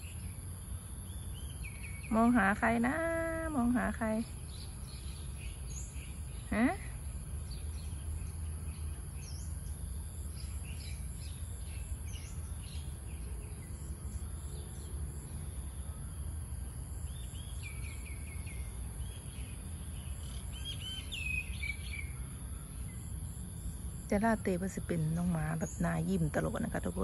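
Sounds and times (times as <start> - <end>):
birds chirping: 16.9 - 23.2.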